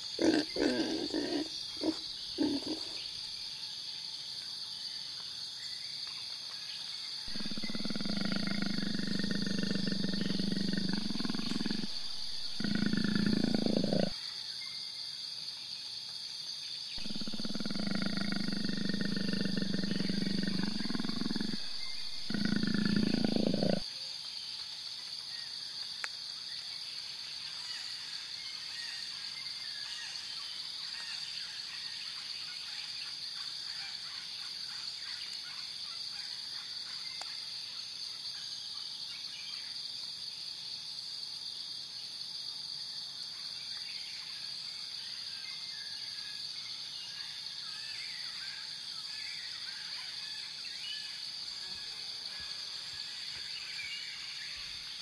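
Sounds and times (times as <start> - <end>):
leopard calling: 0.1 - 3.0, 7.3 - 14.1, 17.0 - 23.8.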